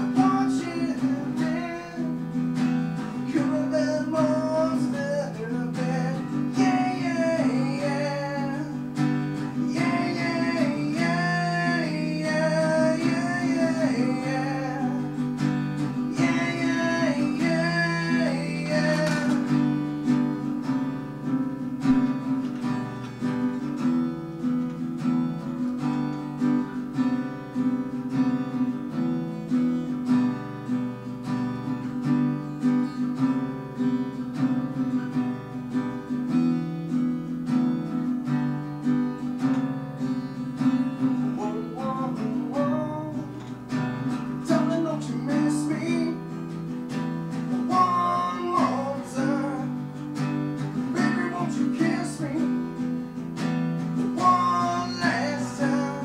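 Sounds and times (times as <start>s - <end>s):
man singing: 0.0s - 20.2s, 41.1s - 53.1s, 53.9s - 56.0s
acoustic guitar strummed: 0.0s - 56.0s.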